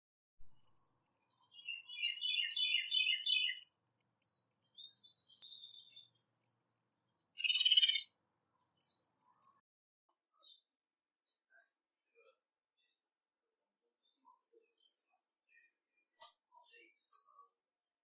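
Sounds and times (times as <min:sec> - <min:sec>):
songbirds chirping: 0:00.4 - 0:09.6, 0:10.3 - 0:17.6
high whistled bird notes: 0:07.4 - 0:08.0.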